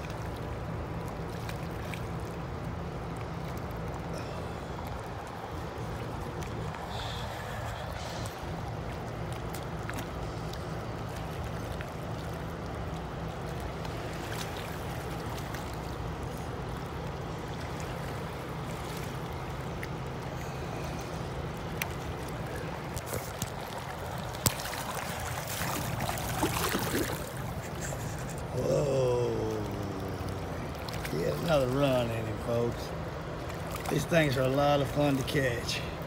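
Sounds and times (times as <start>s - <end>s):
river water lapping: 0.0s - 36.0s
steady low hum: 0.0s - 36.0s
fish splashing at surface: 5.4s - 28.8s.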